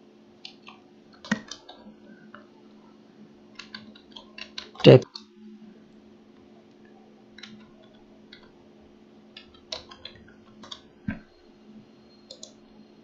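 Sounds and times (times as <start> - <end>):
low steady hum: 0.0 - 13.0
keyboard keystrokes: 0.4 - 1.8, 3.6 - 5.3, 7.4 - 8.5, 9.4 - 11.2, 12.2 - 12.6.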